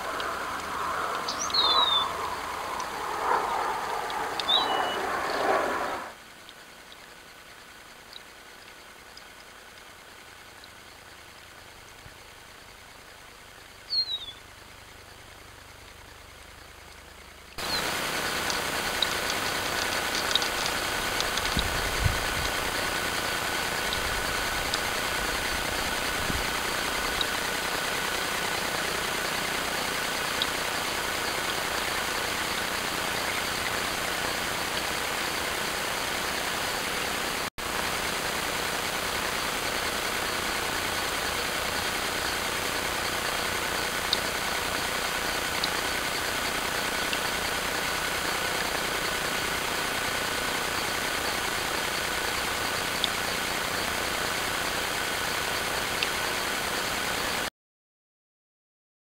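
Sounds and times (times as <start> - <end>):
faint clicks: 0.0 - 5.4, 16.9 - 25.4, 45.6 - 45.9, 52.9 - 53.2
faint constant whine: 0.0 - 57.5.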